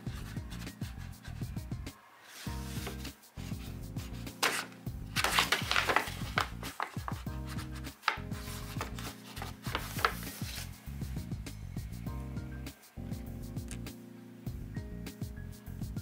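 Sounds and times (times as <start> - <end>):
background music: 0.0 - 16.0
paper bag crinkling and rustling: 4.4 - 7.2.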